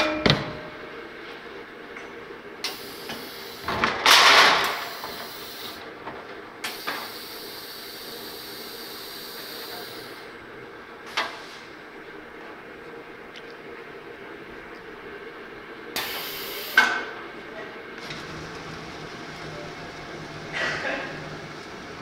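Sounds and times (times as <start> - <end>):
compressed air hiss: 2.7 - 3.8, 4.7 - 5.8, 6.7 - 10.3, 16.0 - 16.9
cutting machine hum: 18.0 - 22.0.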